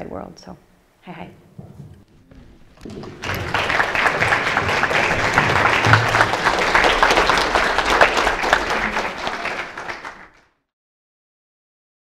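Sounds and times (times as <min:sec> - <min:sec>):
audience applauding: 0:02.7 - 0:10.5.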